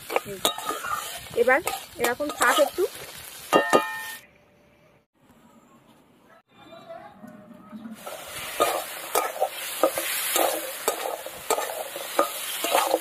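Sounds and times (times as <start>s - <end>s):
crab sizzling in a pan: 0.0s - 4.2s, 8.0s - 13.0s
metal spatula scraping a pan: 0.0s - 4.2s, 8.0s - 13.0s.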